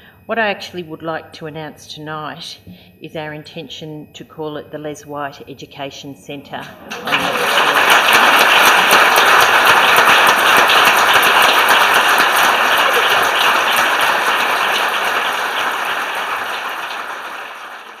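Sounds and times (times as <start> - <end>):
audience applauding: 6.7 - 18.0.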